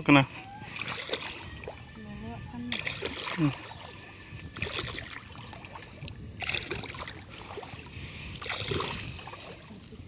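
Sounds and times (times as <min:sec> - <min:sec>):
footsteps squelching through mud and water: 0:04.5 - 0:10.0.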